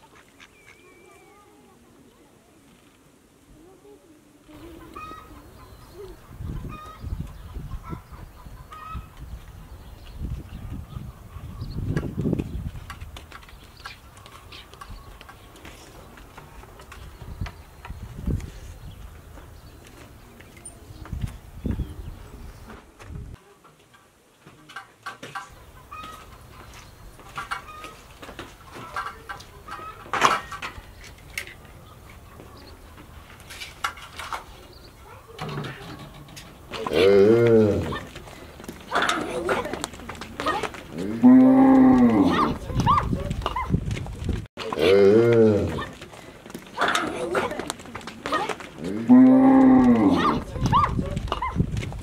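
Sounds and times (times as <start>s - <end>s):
chickens clucking: 0.0s - 1.4s, 4.5s - 12.6s, 21.7s - 43.8s, 44.6s - 51.7s
birds chirping: 0.0s - 3.0s, 3.6s - 23.4s, 25.2s - 51.8s
footsteps on packed dirt: 8.8s - 22.0s, 25.9s - 29.9s, 37.4s - 52.0s.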